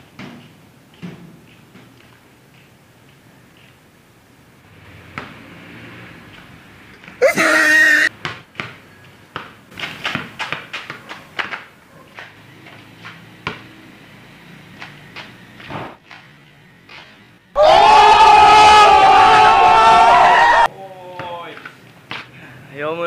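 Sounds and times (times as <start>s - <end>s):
basketball bouncing on concrete: 5.1s - 5.4s, 8.1s - 13.7s.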